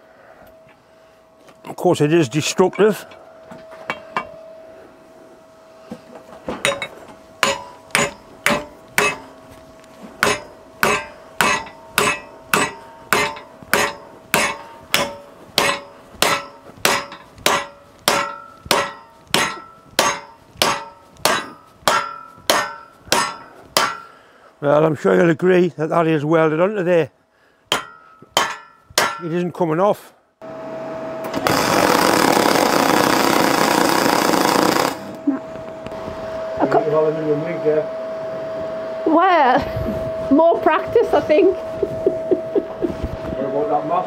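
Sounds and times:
hammer striking metal: 6.6 - 9.4, 10.2 - 24.2, 27.7 - 29.4.

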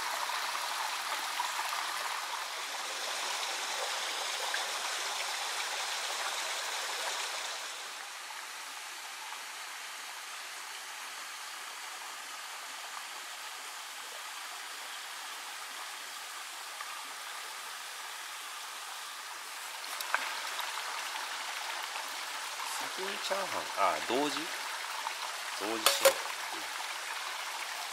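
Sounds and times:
stream water rushing: 0.0 - 11.0, 15.0 - 27.9
sharp click: 25.8 - 26.3.

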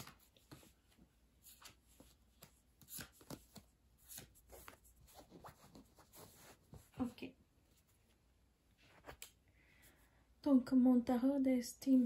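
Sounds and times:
cards sliding and tapping: 1.4 - 4.9.

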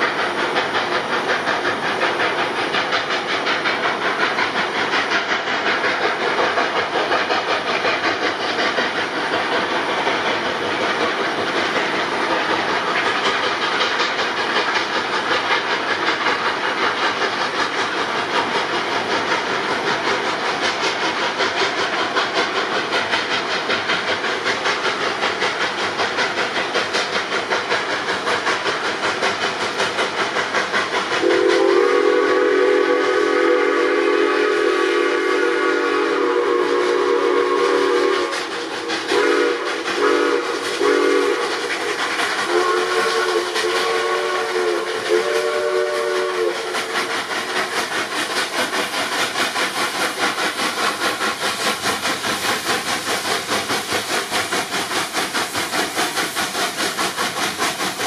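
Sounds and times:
steam locomotive exhaust beats: 0.0 - 58.0
steam whistle blasts: 31.2 - 38.4, 39.1 - 41.6, 42.4 - 46.8.

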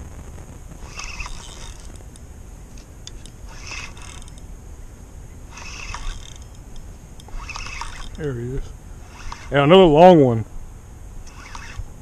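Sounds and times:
low rumble: 0.0 - 3.5
fishing reel gears whirring: 0.8 - 2.2, 2.8 - 4.5, 5.5 - 9.8, 11.2 - 11.9.

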